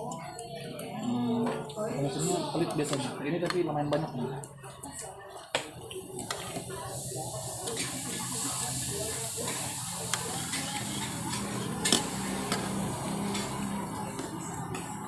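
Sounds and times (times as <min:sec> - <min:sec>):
food sizzling in a pan: 0:06.0 - 0:15.0.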